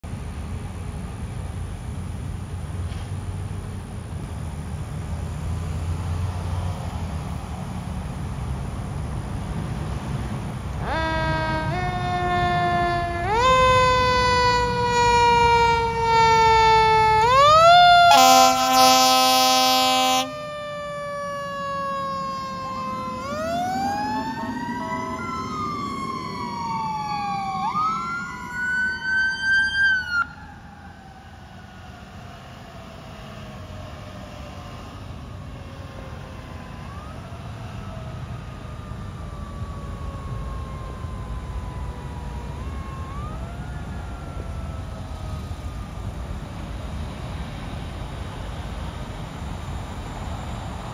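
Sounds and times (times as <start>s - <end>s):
sirens wailing: 9.8s - 47.8s
fire truck horn blast: 10.8s - 20.6s.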